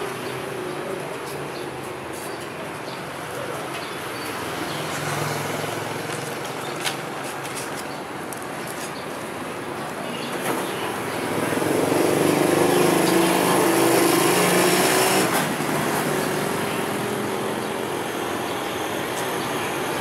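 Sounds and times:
street noise: 0.0s - 20.0s
vehicle engine passing by: 4.4s - 6.5s, 11.2s - 17.9s.

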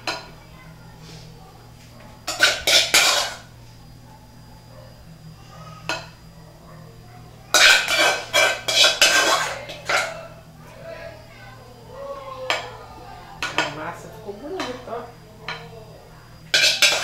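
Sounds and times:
spoon scraping and knocking pot: 2.3s - 3.5s, 7.6s - 10.2s, 16.5s - 17.0s.

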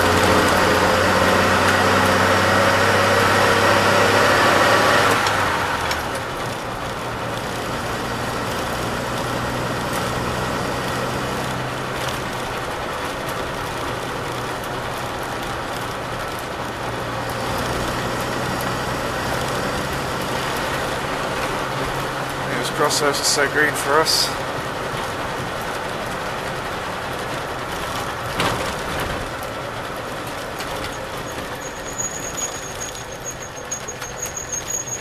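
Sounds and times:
engine droning: 0.0s - 35.0s
tyres hissing on wet road: 21.8s - 24.6s.

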